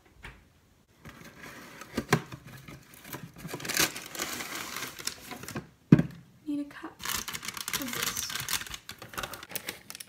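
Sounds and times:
plastic bag crinkling: 2.9 - 5.6, 7.0 - 10.0.

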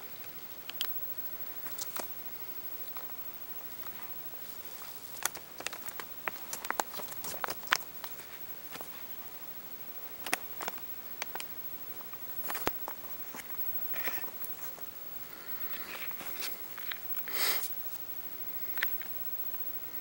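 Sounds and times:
rat scrabbling and scratching: 2.8 - 9.0.

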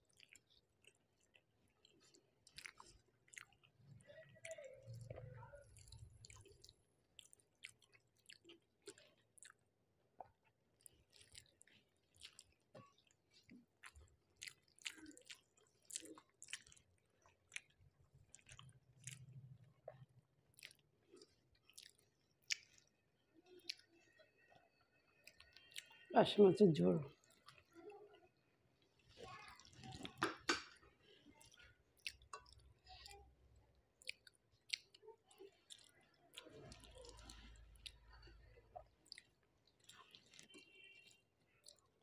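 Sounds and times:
person chewing food: 0.0 - 26.1, 27.1 - 42.0
wet mouth clicks and lip smacks: 21.6 - 22.9, 34.0 - 35.0.

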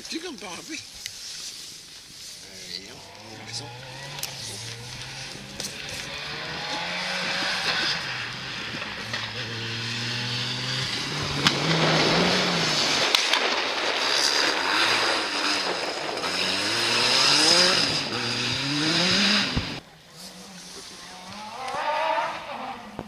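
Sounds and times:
tyre and road noise: 0.0 - 23.0
rally car engine revving: 2.9 - 19.8
sharp cracks: 10.5 - 19.8.

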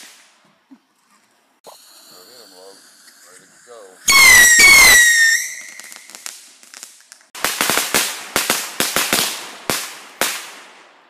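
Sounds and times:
faint firework crackles: 0.0 - 11.0
firework whistle: 4.0 - 6.4
rapid firework bangs: 4.1 - 11.0.

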